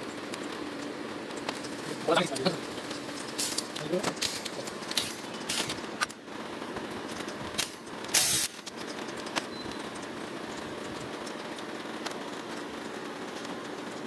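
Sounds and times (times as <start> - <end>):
steady background drone: 0.0 - 14.0
cables and tool clicking on metal: 7.0 - 14.0.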